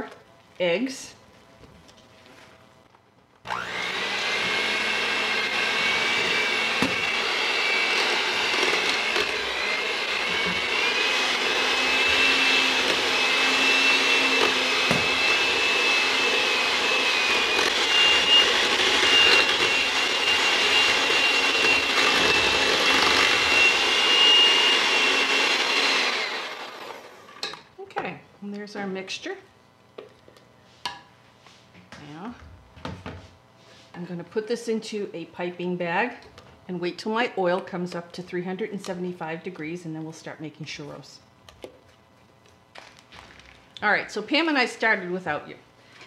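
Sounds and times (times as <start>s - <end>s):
electric hand mixer whining: 3.4s - 27.5s.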